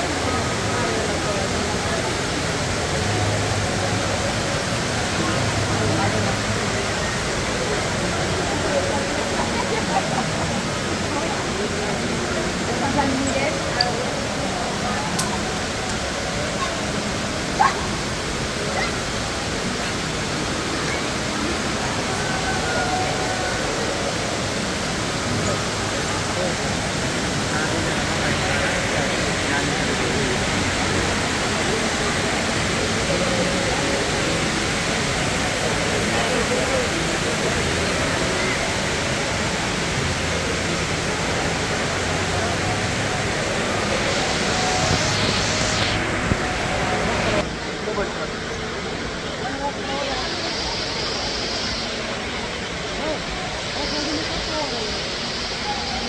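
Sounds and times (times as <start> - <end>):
faint crowd chatter: 0.0 - 56.0
waterfall rushing: 0.0 - 56.0.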